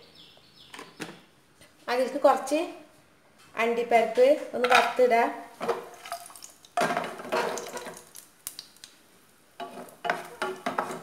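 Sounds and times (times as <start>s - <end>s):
nuts sizzling in hot oil: 5.8s - 11.0s.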